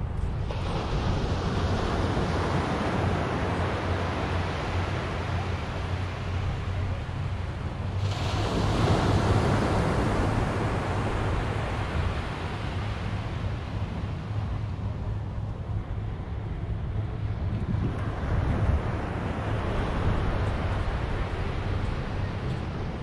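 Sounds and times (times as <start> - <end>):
wind rumbling on microphone: 0.0 - 23.0
ocean surf breaking: 0.4 - 14.4.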